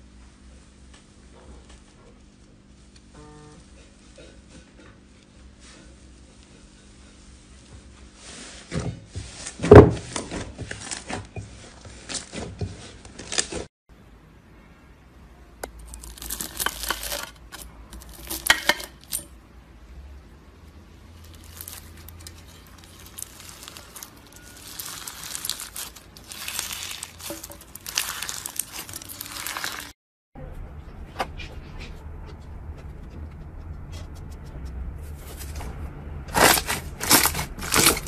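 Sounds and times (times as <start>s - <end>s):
bead slime crackling: 15.7s - 19.2s, 21.2s - 30.0s, 36.3s - 38.0s
hands squishing slime: 21.3s - 29.9s.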